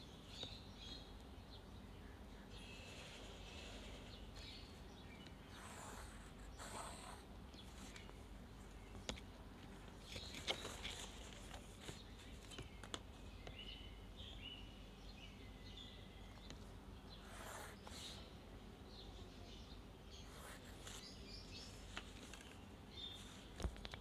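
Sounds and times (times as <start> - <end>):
faint bird chirping: 0.0 - 24.0
light taps and paper rustles: 8.9 - 13.6, 21.8 - 24.0.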